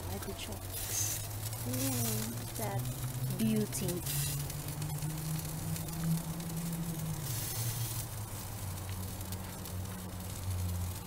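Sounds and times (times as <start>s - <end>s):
vegetables sizzling on a grill: 0.0s - 11.0s.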